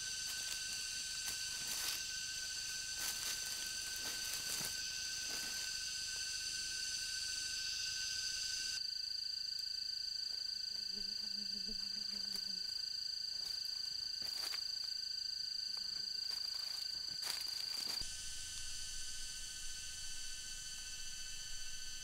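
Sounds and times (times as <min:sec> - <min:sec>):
footsteps on dry leaf litter: 0:00.0 - 0:05.7, 0:13.4 - 0:14.8, 0:16.0 - 0:18.0
insects droning: 0:00.0 - 0:22.0.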